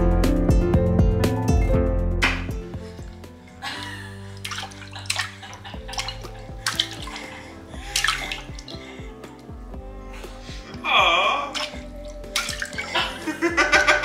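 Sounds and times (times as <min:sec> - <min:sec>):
background music: 0:00.0 - 0:14.0
hand splashing in water bowl: 0:02.2 - 0:09.0, 0:11.2 - 0:13.2.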